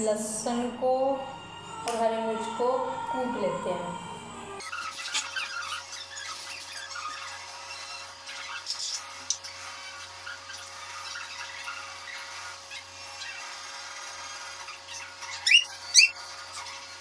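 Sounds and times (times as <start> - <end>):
steady low hum: 0.0 - 4.7.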